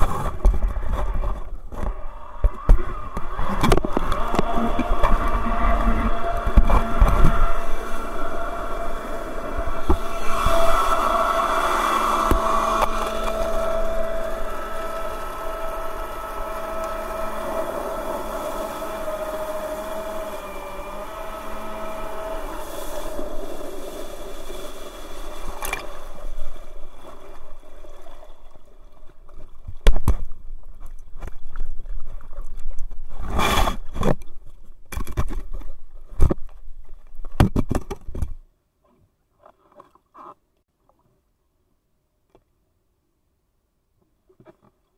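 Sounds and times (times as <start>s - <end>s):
water rushing: 0.0s - 32.7s
jet drive whining: 2.9s - 25.2s.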